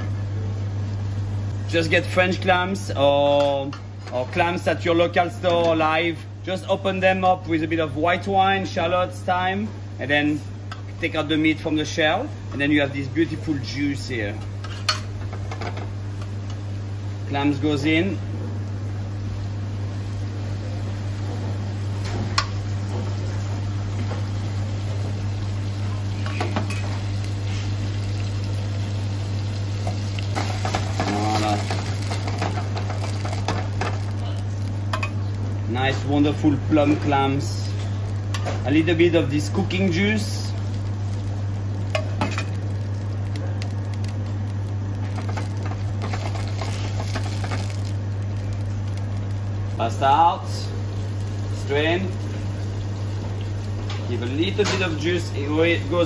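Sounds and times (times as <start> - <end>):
steady low hum: 0.0 - 56.0
clams sizzling in oil: 13.3 - 56.0.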